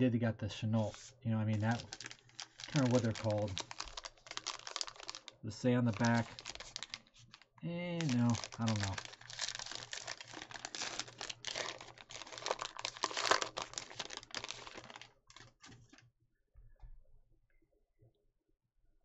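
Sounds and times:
card pack wrapper crinkling and tearing: 0:00.8 - 0:16.0.

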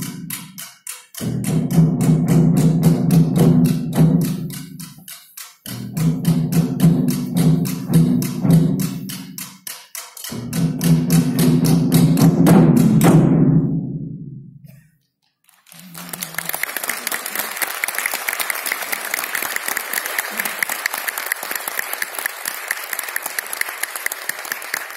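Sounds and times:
taiko drums beating: 0:00.0 - 0:14.4
audience applause: 0:15.5 - 0:24.9.

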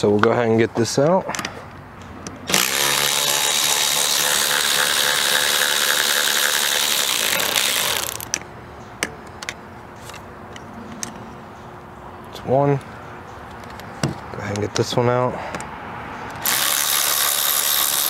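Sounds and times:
electric ratchet running: 0:02.5 - 0:08.4, 0:16.4 - 0:18.0.

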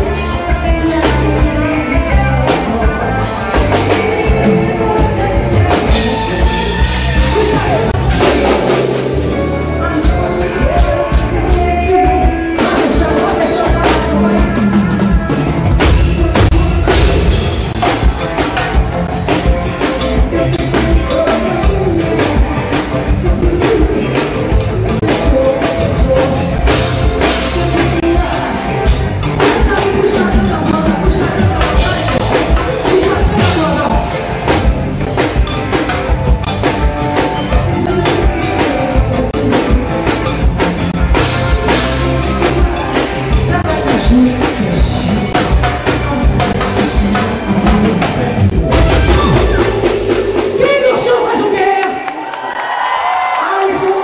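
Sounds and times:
woman singing into microphone: 0:00.0 - 0:08.8, 0:09.8 - 0:17.4, 0:20.2 - 0:34.1, 0:37.5 - 0:40.1, 0:43.3 - 0:52.0
drum kit beat: 0:00.0 - 0:53.0
live band music: 0:00.0 - 0:54.0.

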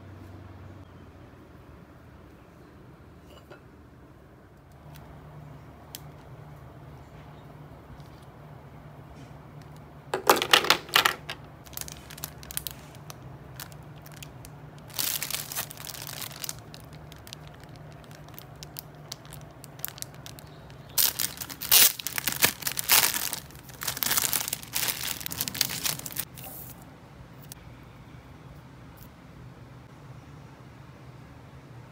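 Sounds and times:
plastic packaging crinkling: 0:09.6 - 0:26.7.

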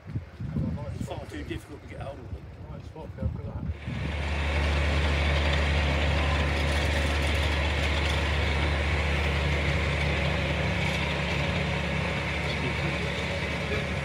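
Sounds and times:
locomotive engine idling: 0:03.7 - 0:14.0.

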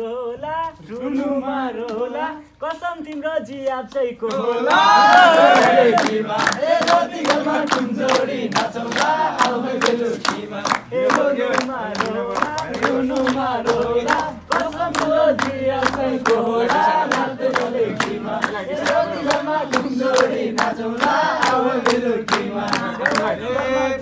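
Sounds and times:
men singing together: 0:00.0 - 0:24.0
hand claps: 0:01.8 - 0:02.1, 0:03.0 - 0:23.7.

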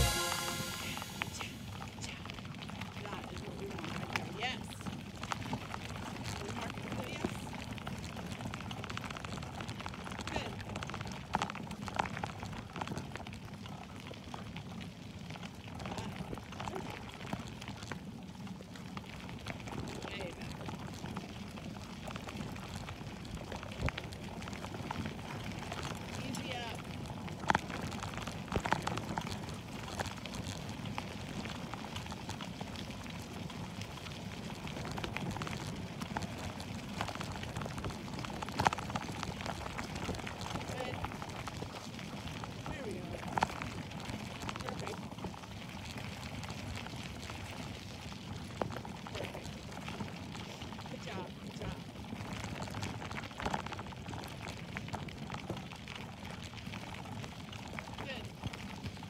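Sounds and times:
gravel crunching and ticking: 0:01.6 - 0:59.0
bicycle tyres rumbling on dirt: 0:03.0 - 0:59.0.

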